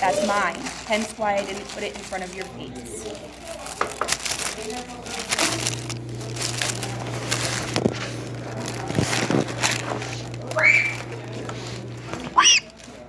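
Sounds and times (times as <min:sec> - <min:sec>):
paper wrapper crinkling: 0:00.0 - 0:13.0
steady low hum: 0:05.2 - 0:12.4.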